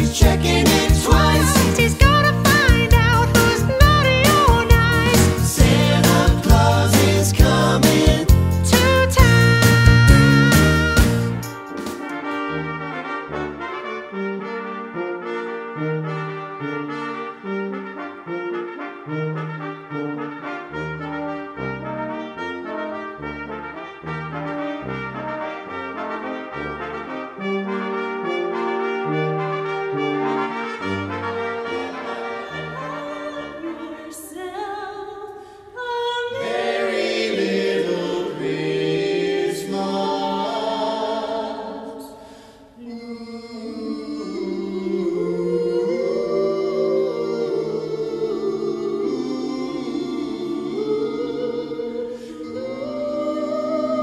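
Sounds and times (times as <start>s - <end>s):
carolers singing: 0.0s - 11.4s, 36.2s - 42.2s, 42.8s - 54.0s
full orchestral music with crashes: 0.0s - 14.4s
brass quintet playing: 0.0s - 34.6s.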